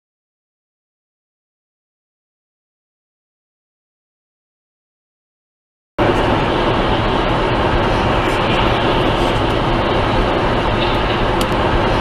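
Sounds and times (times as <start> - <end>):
car driving at highway speed: 6.0 - 12.0.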